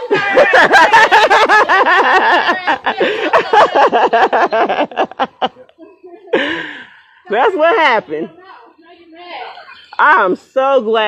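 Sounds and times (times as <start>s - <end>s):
high-pitched laughter: 0.0s - 6.8s.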